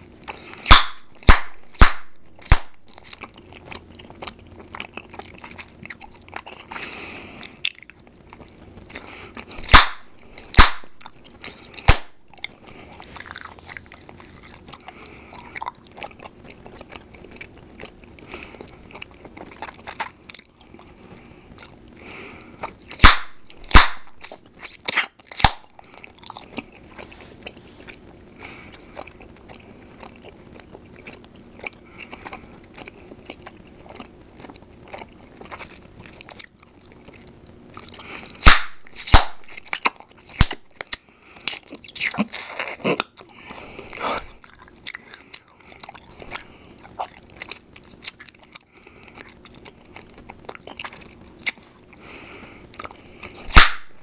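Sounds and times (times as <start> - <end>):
gum chewing with wet smacks: 0.0 - 54.0
sharp gum pops: 0.6 - 2.9, 9.6 - 11.2, 11.8 - 12.2, 23.0 - 25.7, 38.4 - 40.9, 53.5 - 54.0.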